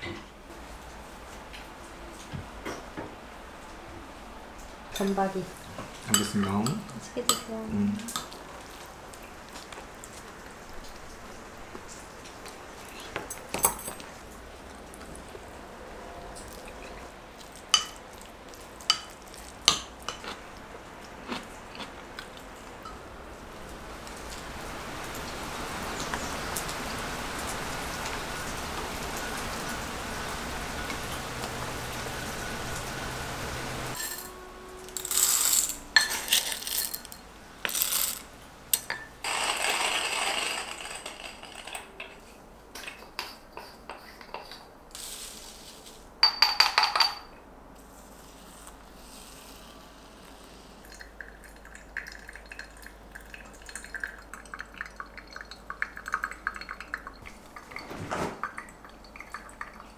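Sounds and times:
dishes and cutlery clinking: 0:06.1 - 0:08.4, 0:34.0 - 0:38.2, 0:46.2 - 0:47.4
steady hiss: 0:22.4 - 0:46.6, 0:47.5 - 0:51.2.

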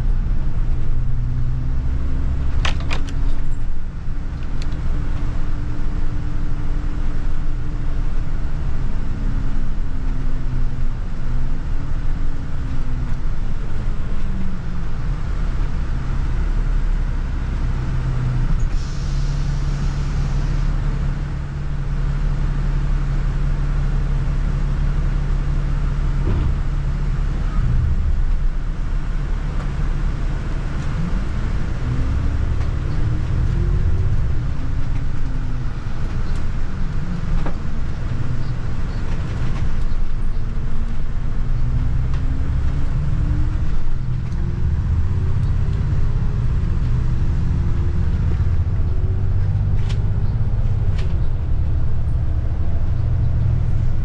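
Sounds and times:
bus engine and road rumble: 0:00.0 - 0:54.0
brief hiss: 0:18.7 - 0:20.6.

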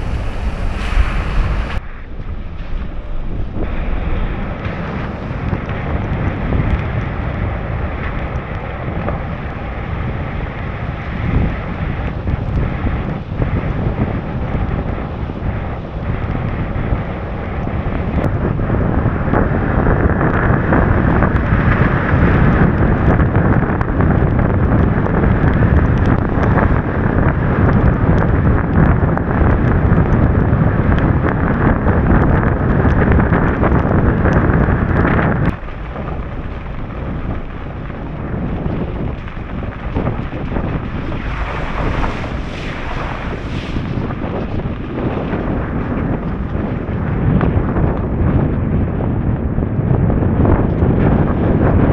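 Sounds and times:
tyres hissing on wet pavement: 0:00.0 - 0:01.8, 0:40.9 - 0:44.1
wind buffeting microphone: 0:00.0 - 0:51.9.

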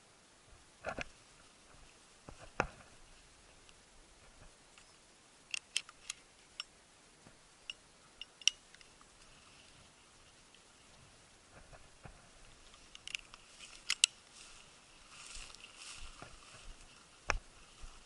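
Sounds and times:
faint background hiss: 0:00.0 - 0:18.0
handling clicks and ticks: 0:03.6 - 0:06.8, 0:07.6 - 0:09.3, 0:11.6 - 0:14.4.

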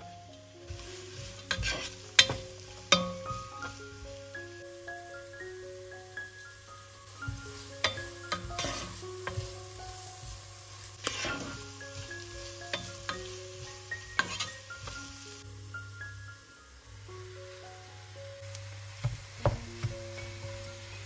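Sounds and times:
light background music: 0:00.0 - 0:21.0
vegetables sizzling in oil: 0:00.0 - 0:21.0
wooden spoon stirring: 0:00.7 - 0:03.8, 0:07.2 - 0:15.2
spoon knocking against pan: 0:07.2 - 0:09.6.

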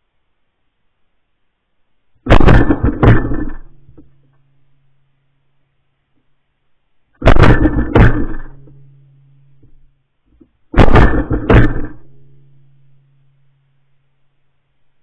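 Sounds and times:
shotgun shots: 0:02.3 - 0:04.1, 0:07.2 - 0:08.8, 0:10.8 - 0:12.3.

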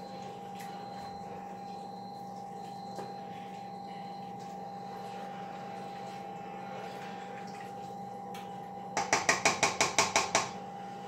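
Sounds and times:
steady hum: 0:00.0 - 0:11.0
spoon tapping against a pot: 0:09.0 - 0:10.6.

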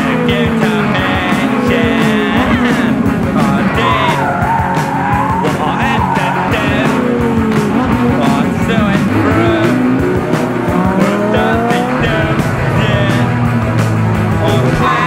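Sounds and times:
car engine revving: 0:00.0 - 0:15.0
music with steady beat: 0:00.0 - 0:15.0
tyre squeal: 0:03.7 - 0:06.6.

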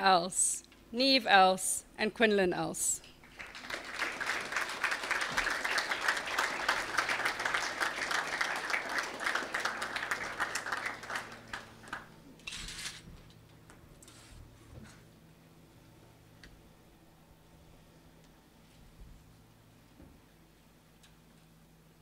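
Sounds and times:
audience clapping: 0:03.2 - 0:12.2.

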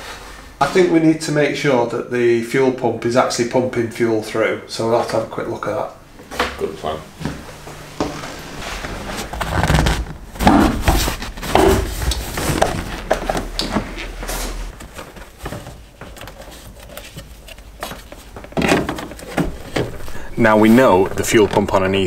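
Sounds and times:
knocks scrapes and rustles: 0:08.0 - 0:22.0.

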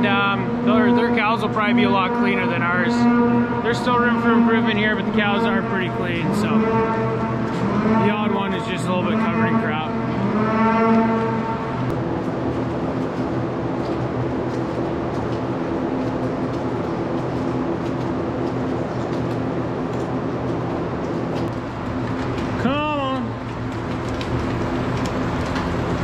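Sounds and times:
machine hum: 0:00.0 - 0:26.0
cow mooing: 0:02.3 - 0:11.8.

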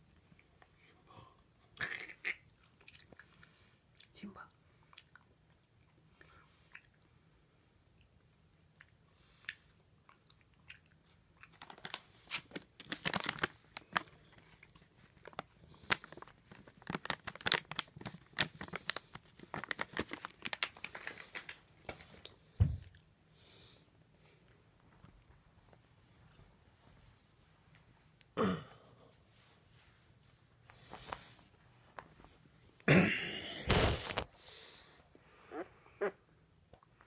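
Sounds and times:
plastic pouch crinkling: 0:11.5 - 0:21.6, 0:33.7 - 0:34.3.

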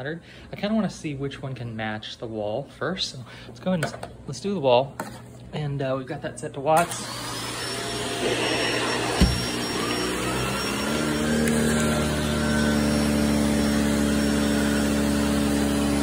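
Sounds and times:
vacuum cleaner whining: 0:06.8 - 0:16.0.

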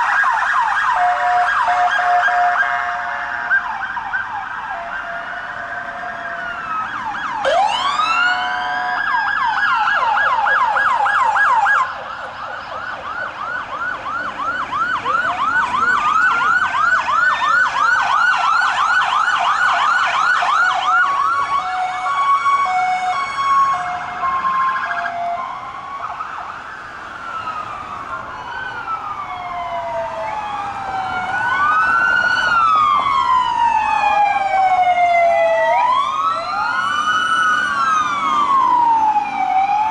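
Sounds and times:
fast siren yelp: 0:00.0 - 0:39.9
police sirens wailing: 0:00.0 - 0:39.9
two-tone hi-lo siren: 0:00.0 - 0:39.9.

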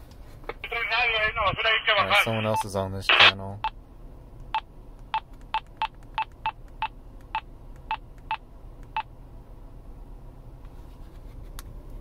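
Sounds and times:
walkie-talkie short beeps: 0:01.8 - 0:03.3.

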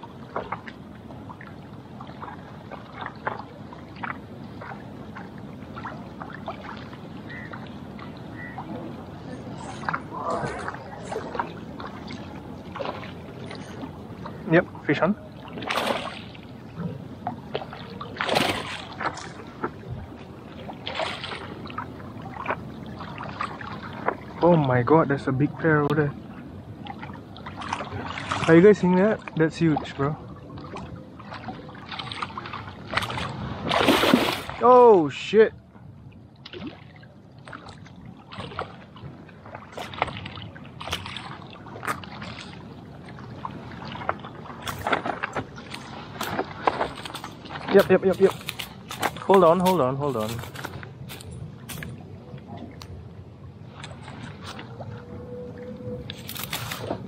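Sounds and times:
fish splashing at water surface: 0:15.5 - 0:16.4, 0:17.7 - 0:19.4, 0:32.0 - 0:34.6.

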